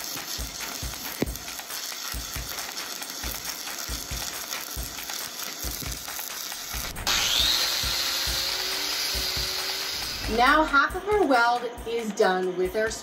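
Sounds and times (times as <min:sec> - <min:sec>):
welding arc crackling and hissing: 0:00.0 - 0:11.3
angle grinder with wire wheel whining: 0:02.1 - 0:10.4.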